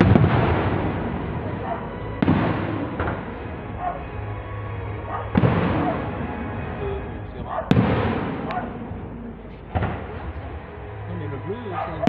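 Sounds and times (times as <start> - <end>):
firework shells bursting: 0.0 - 3.5.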